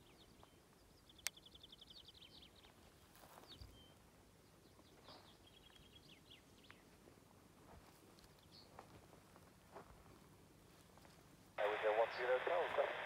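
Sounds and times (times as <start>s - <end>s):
small birds singing: 0.0s - 7.0s, 8.3s - 8.8s.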